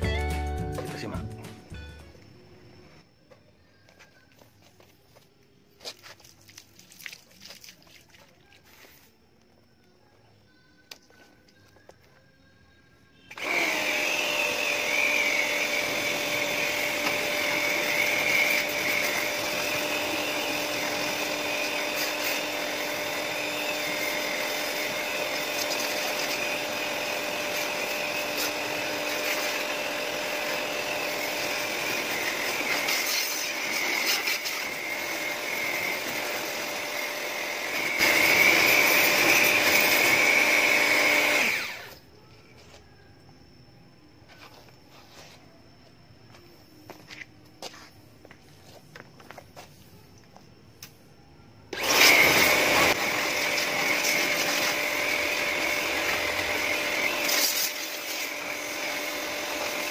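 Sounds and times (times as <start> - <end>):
pressure washer motor whine: 13.3 - 42.0, 51.7 - 59.9.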